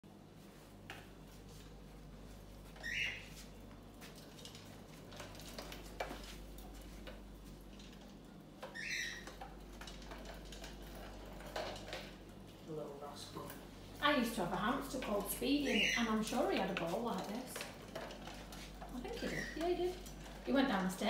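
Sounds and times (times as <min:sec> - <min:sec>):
plastic ball rolling on tiles: 0:04.1 - 0:12.5, 0:14.2 - 0:21.0.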